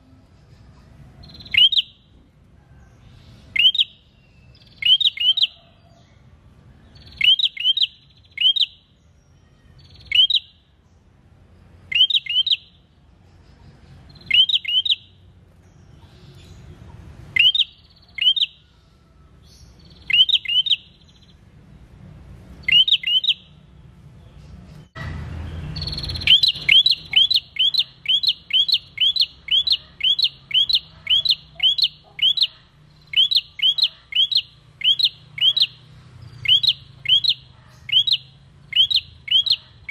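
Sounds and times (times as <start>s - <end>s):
bird calling: 1.2s - 2.0s, 3.5s - 4.0s, 4.6s - 6.1s, 7.0s - 8.9s, 9.8s - 10.6s, 11.8s - 12.8s, 14.0s - 15.3s, 15.9s - 21.4s, 22.6s - 23.5s, 25.7s - 39.9s.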